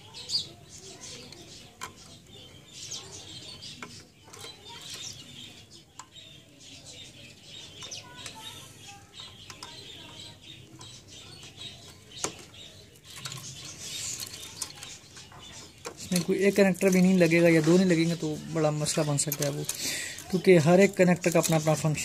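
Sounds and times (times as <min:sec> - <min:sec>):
cables rustling: 0:00.0 - 0:22.0
plastic connectors clicking: 0:18.8 - 0:22.0.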